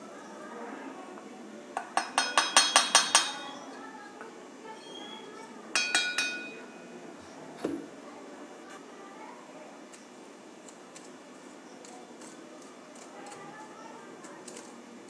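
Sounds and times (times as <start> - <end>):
metal cup clinking on sieve: 1.8 - 3.6, 5.7 - 6.7.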